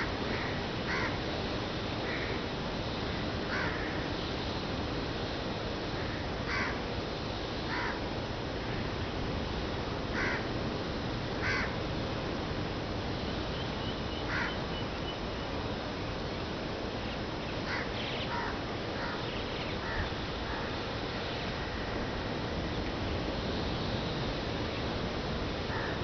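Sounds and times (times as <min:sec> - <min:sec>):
crows cawing: 0:00.2 - 0:01.2, 0:02.0 - 0:02.4, 0:03.2 - 0:04.1, 0:06.0 - 0:06.8, 0:07.7 - 0:08.0, 0:10.1 - 0:10.5, 0:11.4 - 0:11.8, 0:14.3 - 0:14.6, 0:17.7 - 0:20.8, 0:21.5 - 0:22.1, 0:25.7 - 0:26.0.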